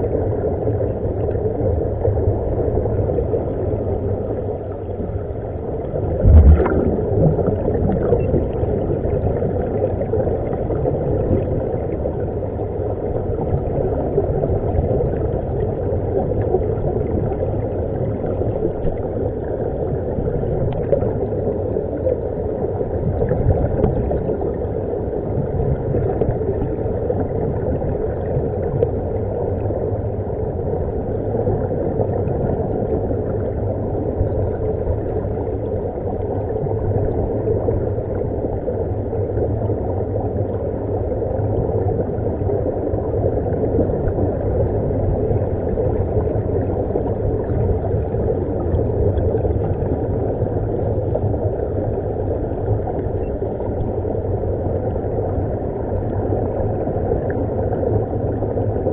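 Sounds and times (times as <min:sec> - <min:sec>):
underwater rumble and bubbling: 0:00.0 - 0:58.9
low thump: 0:06.2 - 0:07.4.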